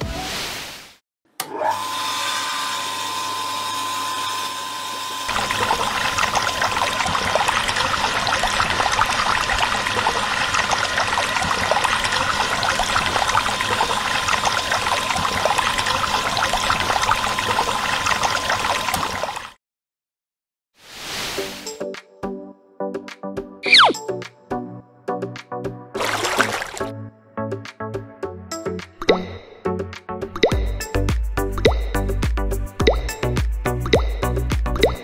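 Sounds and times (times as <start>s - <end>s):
small pump motor whine: 1.4s - 19.5s
water splashing into pool: 5.3s - 19.6s, 26.0s - 26.9s.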